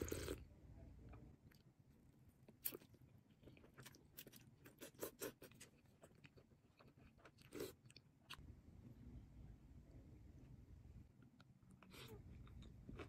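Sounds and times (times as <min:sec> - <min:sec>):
chewing noodles: 0:00.0 - 0:00.4, 0:02.5 - 0:08.4.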